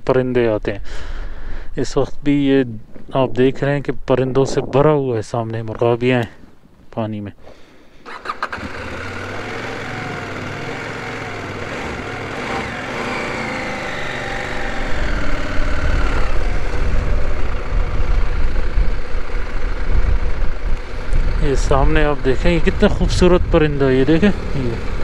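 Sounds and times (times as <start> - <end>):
vehicle engine running: 8.1 - 25.0
heavy low rumble: 9.2 - 25.0.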